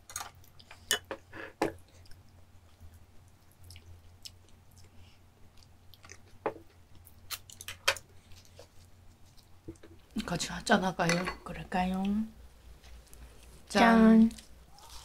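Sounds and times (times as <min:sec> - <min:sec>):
soft chewing: 0:01.7 - 0:10.3, 0:11.9 - 0:15.0.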